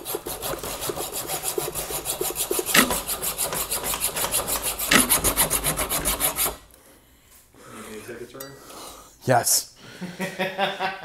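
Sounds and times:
hacksaw cutting metal rod: 0.0 - 6.6.

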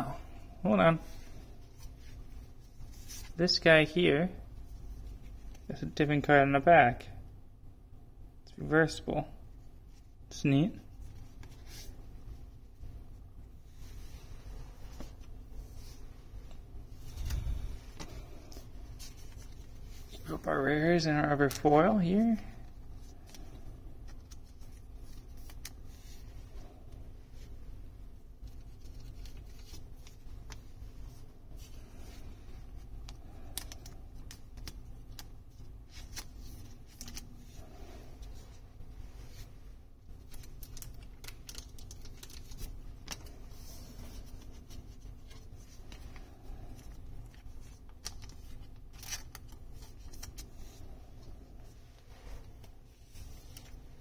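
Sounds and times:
low steady hum: 0.0 - 54.0
cards sliding into plastic sleeves: 17.0 - 20.5, 31.6 - 38.6.

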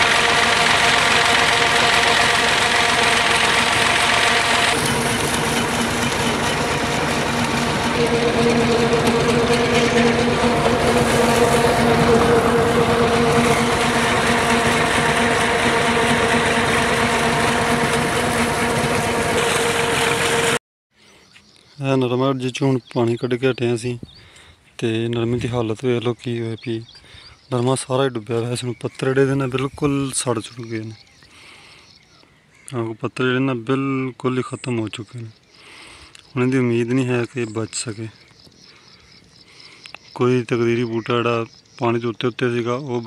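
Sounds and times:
tractor diesel engine running: 0.0 - 20.6.

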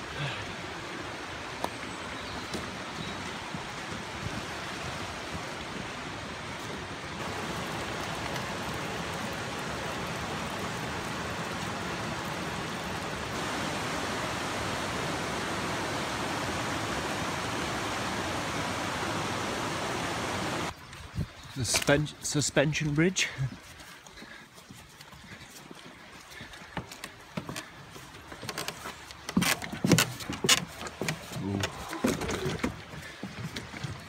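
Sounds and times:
river water rushing over rocks: 0.0 - 20.7.

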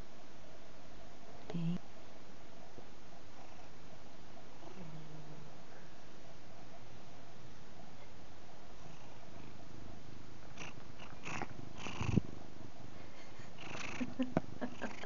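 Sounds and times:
cat purring: 3.2 - 5.9, 7.7 - 15.0.

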